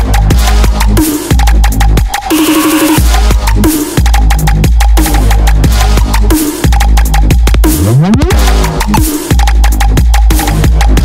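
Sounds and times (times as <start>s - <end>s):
fast driving drum beat: 0.0s - 11.0s
heavy sustained bass line: 3.0s - 11.0s.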